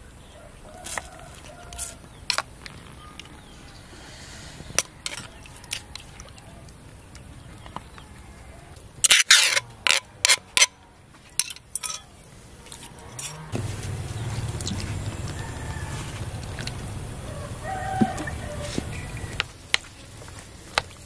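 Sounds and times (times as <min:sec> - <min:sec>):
metal spoon scraping clay mortar: 0:04.8 - 0:05.9, 0:09.0 - 0:13.5.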